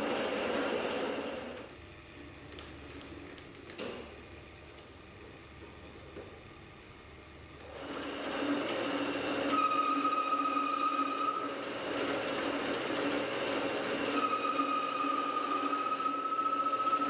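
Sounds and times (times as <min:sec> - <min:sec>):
metal lathe humming: 0:00.0 - 0:01.7, 0:07.6 - 0:17.0
tool cutting metal ringing: 0:14.0 - 0:17.0.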